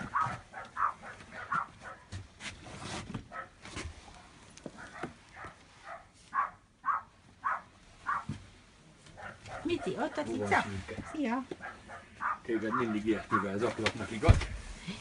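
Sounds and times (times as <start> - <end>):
dog making soft noises: 0.0 - 2.1, 3.3 - 8.4, 9.2 - 13.6.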